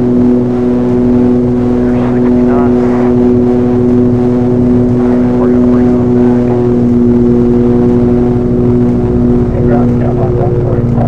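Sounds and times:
propeller plane engines droning: 0:00.0 - 0:11.0.

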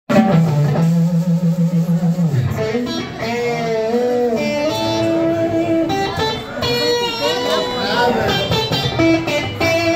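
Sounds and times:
electric guitar through amplifier: 0:00.1 - 0:09.9.

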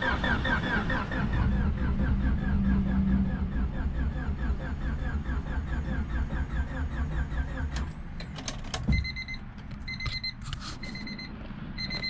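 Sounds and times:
engine cranking on starter: 0:00.0 - 0:08.9
car warning chime beeping: 0:08.9 - 0:12.0.

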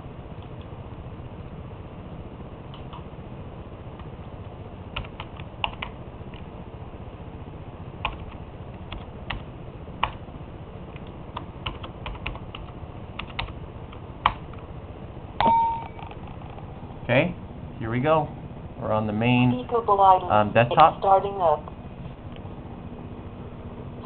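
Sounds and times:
low background noise: 0:00.0 - 0:24.0
keyboard typing clicks: 0:05.0 - 0:06.0, 0:11.0 - 0:13.6.

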